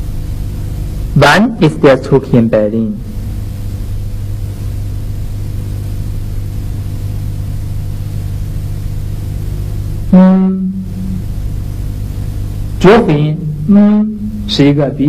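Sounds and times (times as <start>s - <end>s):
low droning hum: 0.0s - 15.0s
man speaking: 1.2s - 3.0s, 12.8s - 15.0s
faint held tones: 9.6s - 12.7s.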